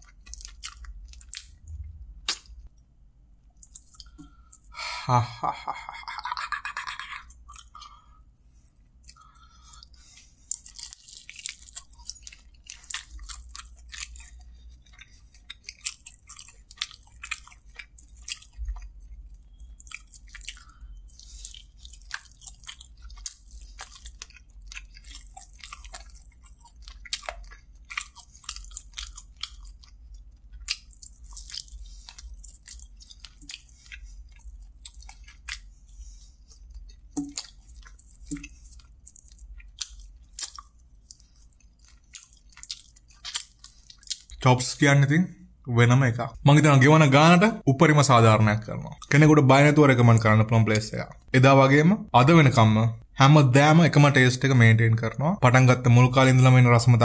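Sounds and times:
person chewing meat: 0.0s - 44.5s
steady low hum: 0.0s - 47.8s.

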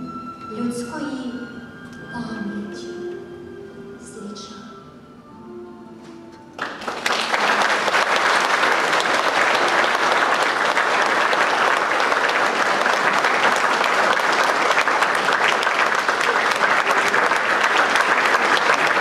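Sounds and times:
audience applause: 6.6s - 19.0s.

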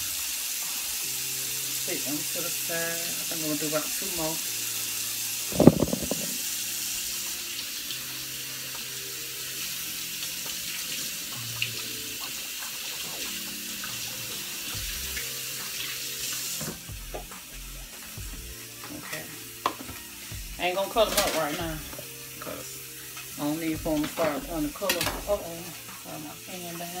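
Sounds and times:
loud thump: 5.5s - 6.4s
tap running into sink: 5.5s - 6.4s, 19.6s - 20.0s.

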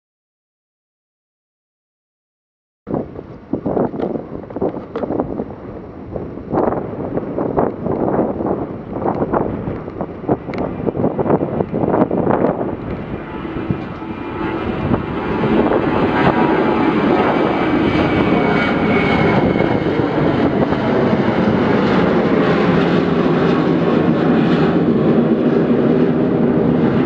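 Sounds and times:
jet engines rumbling: 2.9s - 27.0s.

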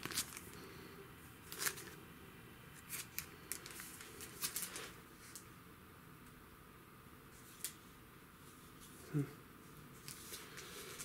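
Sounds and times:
plastic packaging crinkling: 0.0s - 0.6s, 1.5s - 2.0s, 2.8s - 5.4s.

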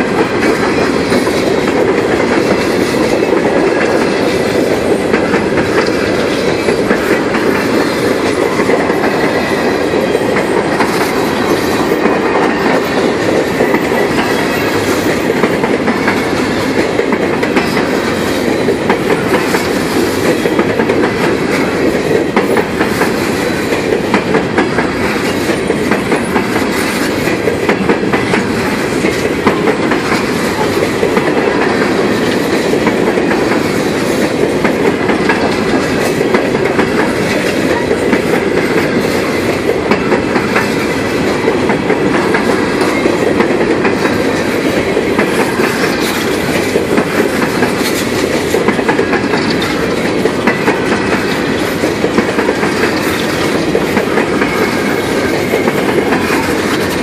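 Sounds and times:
freight train wheels rumbling: 0.0s - 57.0s
wheels clicking over track: 0.0s - 57.0s.

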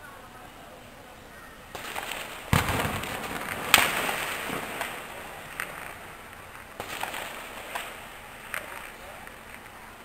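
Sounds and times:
gunshots with echo: 1.8s - 5.3s.

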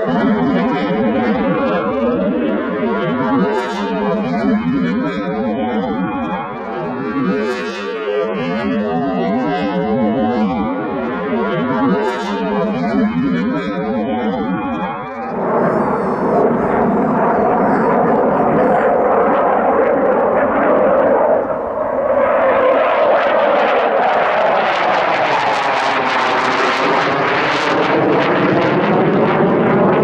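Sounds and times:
falling pitch tone: 0.0s - 23.1s
jet engines roaring: 0.0s - 30.0s.

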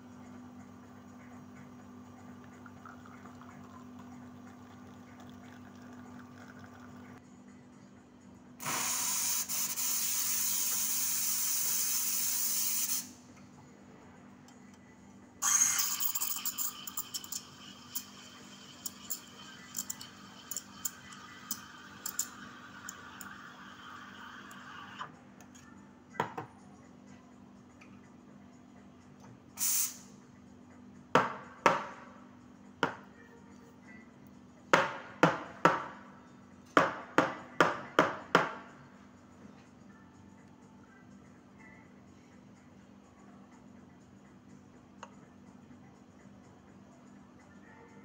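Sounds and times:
steam wand hissing: 8.6s - 13.1s.

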